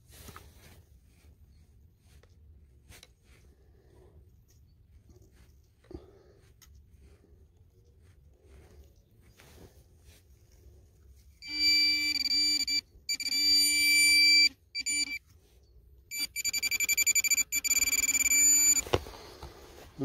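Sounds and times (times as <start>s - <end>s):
pinpointer buzzing alert tone: 11.4s - 15.2s, 16.1s - 18.9s.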